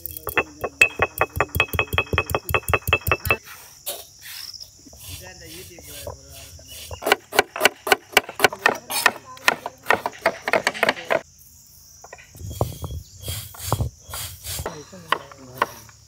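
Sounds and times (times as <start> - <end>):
stone roller grinding on stone: 0.0 - 3.4
crickets trilling: 0.0 - 16.0
knife chopping on wooden board: 7.0 - 11.2, 15.1 - 15.9.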